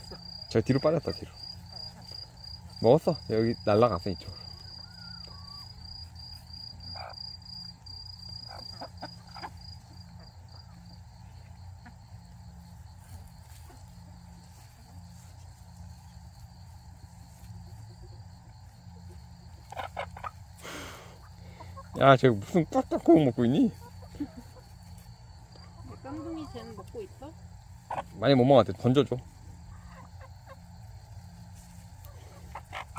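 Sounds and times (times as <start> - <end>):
insect trilling: 0.0 - 32.9.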